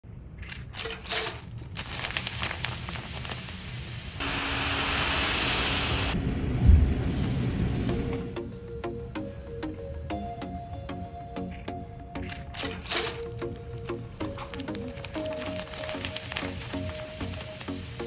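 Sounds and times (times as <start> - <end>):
snacks sizzling in hot oil: 1.7 - 6.2, 14.3 - 18.0.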